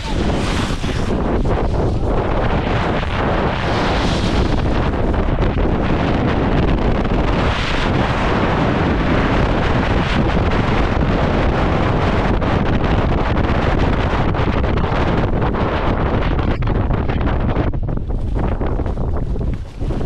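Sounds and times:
snowboard scraping over snow: 0.0 - 11.7
wind buffeting microphone: 0.0 - 20.0.

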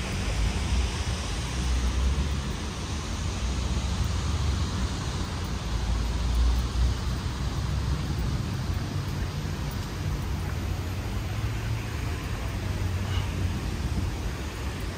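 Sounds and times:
passing traffic: 0.0 - 14.9
wind rumble on microphone: 0.0 - 14.9.

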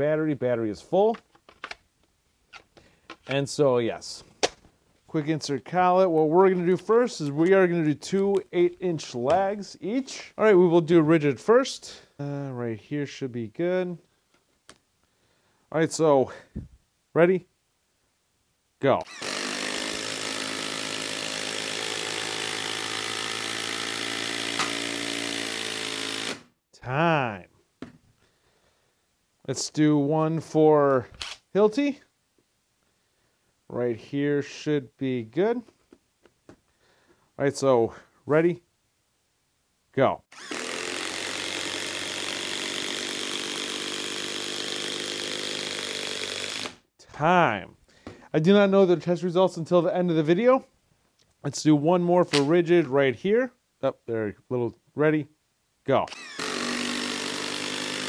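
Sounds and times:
impact driver hammering: 19.0 - 26.5, 40.4 - 46.8, 56.1 - 58.0.

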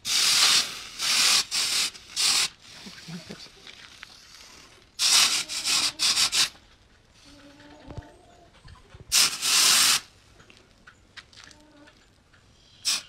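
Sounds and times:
hot steel hissing in water: 0.0 - 3.3, 4.3 - 6.6, 9.1 - 10.1, 12.7 - 13.0.

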